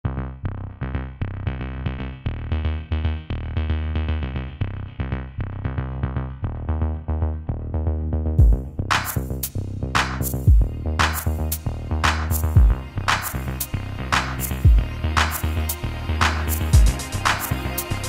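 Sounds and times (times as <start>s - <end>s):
background music with beat: 8.4s - 18.0s.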